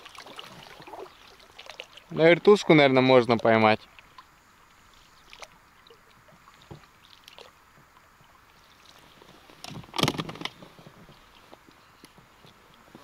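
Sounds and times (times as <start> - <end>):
water sloshing against boat: 0.0 - 13.0.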